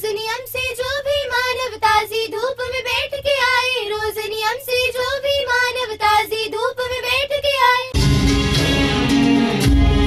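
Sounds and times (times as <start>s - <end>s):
girls singing: 0.0s - 7.9s.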